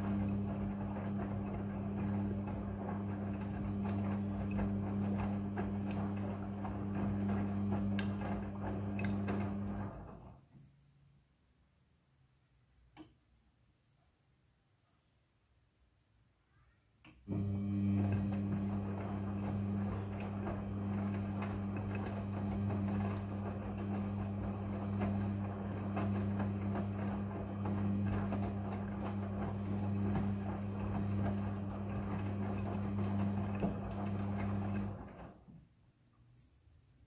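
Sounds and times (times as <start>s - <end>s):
washing machine motor hum: 0.0s - 10.4s, 17.2s - 35.6s.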